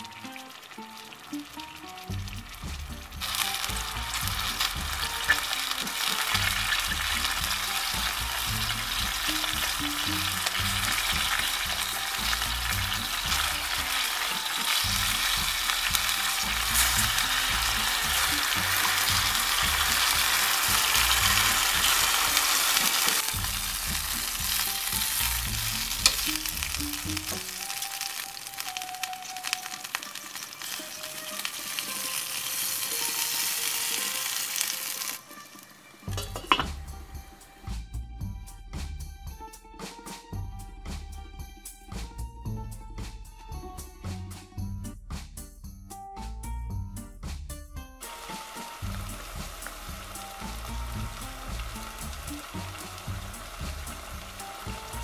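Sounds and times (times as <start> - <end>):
wine pouring into pot: 0.0 - 35.5, 36.1 - 36.8
meat and onions sizzling in oil: 0.0 - 37.7, 48.0 - 55.0.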